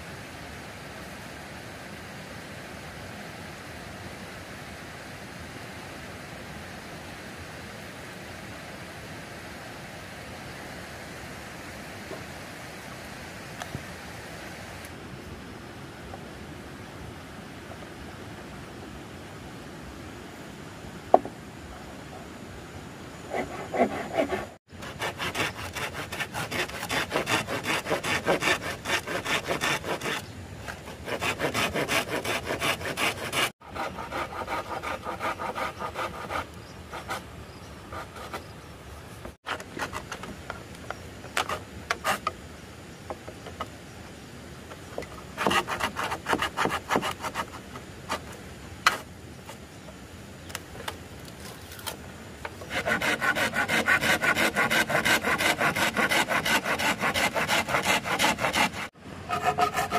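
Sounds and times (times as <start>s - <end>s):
scraping strokes on hard surface: 23.3s - 37.2s, 52.6s - 59.9s.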